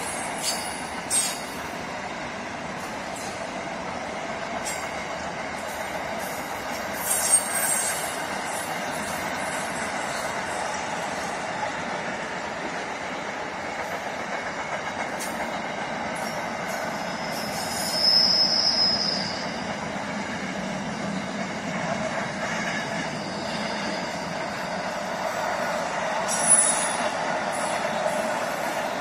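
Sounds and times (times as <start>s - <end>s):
train wheels rumbling on rails: 0.0s - 29.0s
high-pitched wheel squeal: 7.0s - 10.2s, 16.8s - 19.7s, 22.4s - 27.8s.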